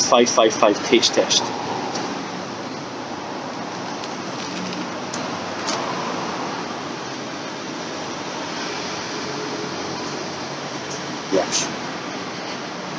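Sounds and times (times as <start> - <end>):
steady rushing hiss: 0.0 - 12.9.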